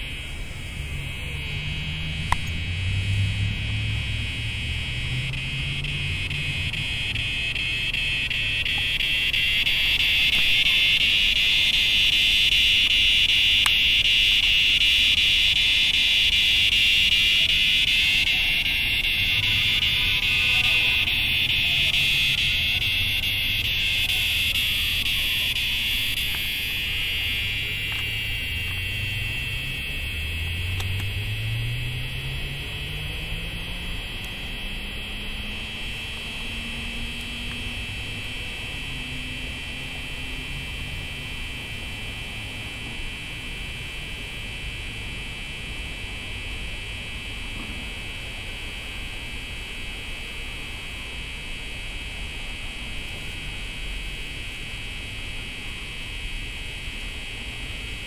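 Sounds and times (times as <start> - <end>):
cicadas buzzing: 0.0 - 42.2.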